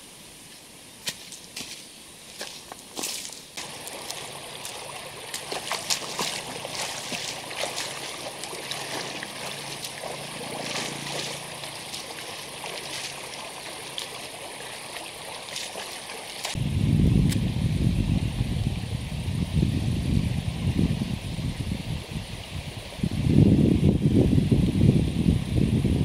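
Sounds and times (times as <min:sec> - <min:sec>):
water trickling: 0:02.4 - 0:16.6.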